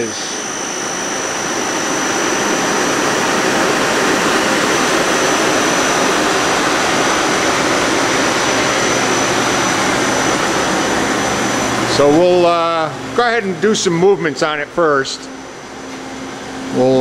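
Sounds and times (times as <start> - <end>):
machine spindle whirring: 0.0 - 17.0.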